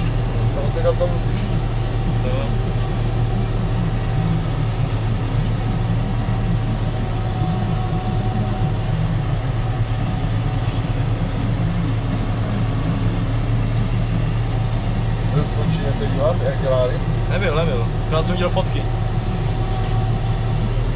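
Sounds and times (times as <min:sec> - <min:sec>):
forage harvester working: 0:00.0 - 0:20.9
tractor diesel engine drone: 0:00.0 - 0:20.9.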